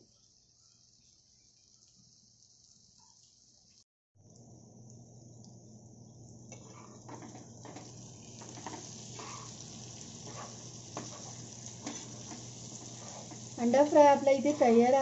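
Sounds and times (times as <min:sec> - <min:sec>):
food sizzling in a frying pan: 0:00.0 - 0:03.8, 0:06.2 - 0:15.0
metal spatula scraping a pan: 0:06.5 - 0:07.8, 0:08.4 - 0:09.6, 0:10.2 - 0:15.0.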